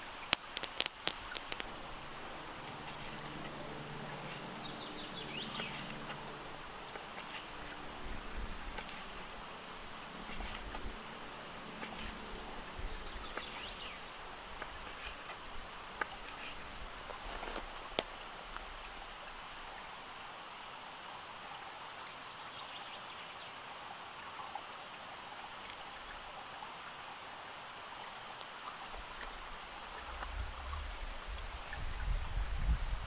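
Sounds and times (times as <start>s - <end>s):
faint high steady tone: 0.0s - 19.0s
outdoor background hiss: 0.0s - 33.0s
low rumble: 1.6s - 17.4s.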